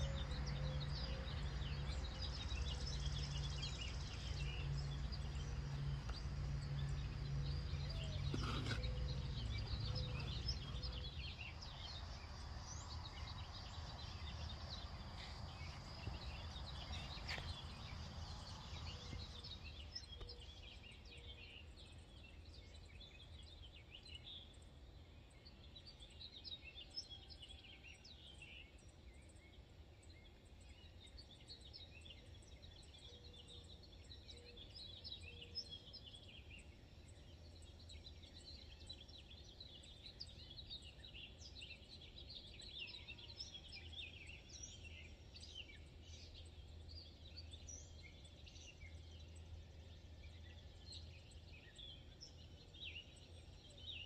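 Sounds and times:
small birds chirping: 0:00.0 - 0:54.0.

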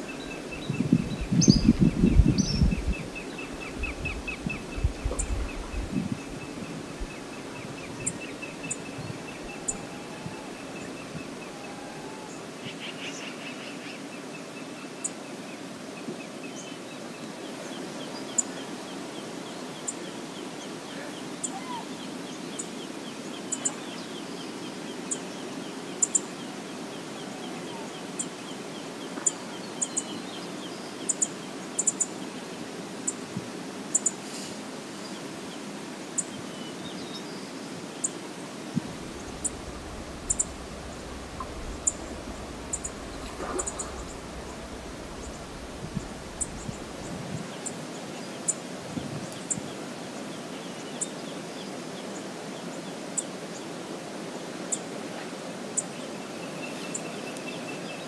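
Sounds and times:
faint bird twittering: 0:00.0 - 0:13.8, 0:38.8 - 0:47.8
river water rushing: 0:05.8 - 0:12.6, 0:34.6 - 0:56.3.

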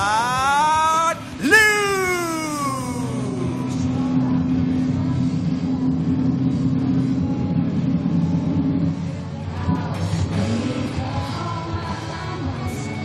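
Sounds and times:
propeller planes droning overhead: 0:02.4 - 0:11.0.

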